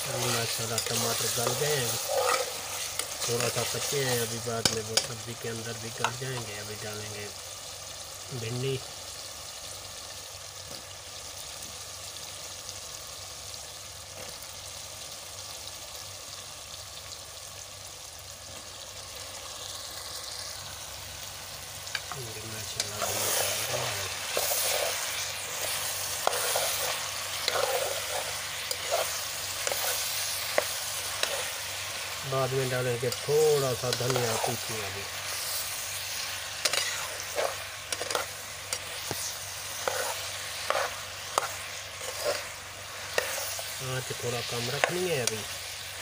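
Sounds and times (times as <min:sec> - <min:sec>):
metal spoon scraping a pan: 0:00.0 - 0:05.2, 0:21.9 - 0:45.6
vegetables sizzling in a pan: 0:00.0 - 0:46.0.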